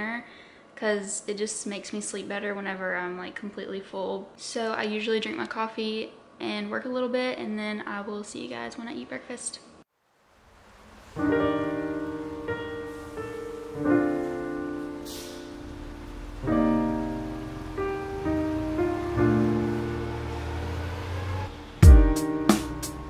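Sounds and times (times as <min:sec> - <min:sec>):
slow piano chords: 0:10.7 - 0:23.0.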